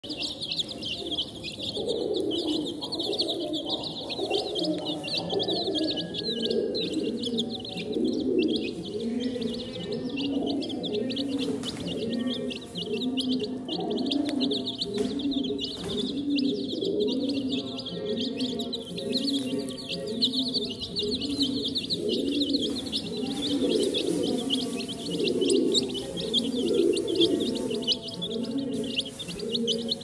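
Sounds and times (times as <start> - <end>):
chicks peeping: 0.0 - 30.0.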